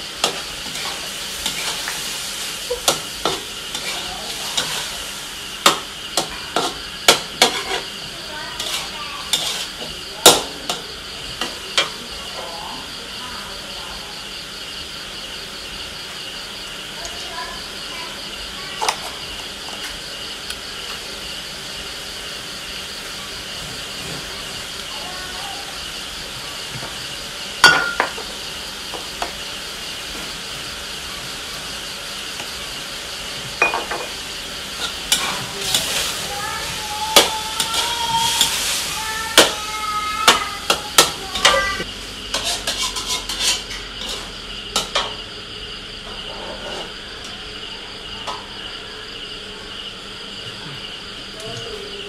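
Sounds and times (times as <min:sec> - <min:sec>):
steady high hiss: 0:00.0 - 0:45.9
metal spatula scraping wok: 0:00.1 - 0:10.8, 0:34.7 - 0:39.6, 0:40.2 - 0:45.0, 0:46.1 - 0:47.0.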